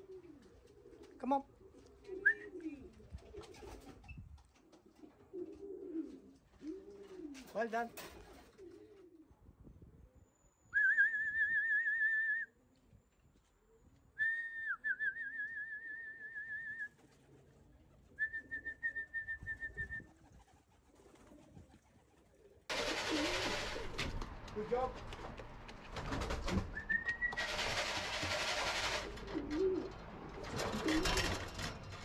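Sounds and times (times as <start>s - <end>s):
pigeon wingbeats: 1.8s - 9.1s, 16.8s - 32.0s.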